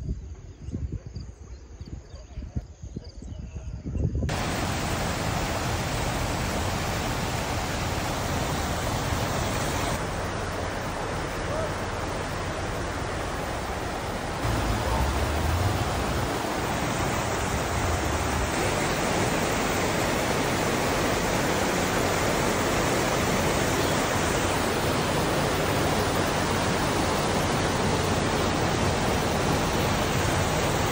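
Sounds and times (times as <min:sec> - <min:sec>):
floodwater rushing: 0:04.3 - 0:30.9.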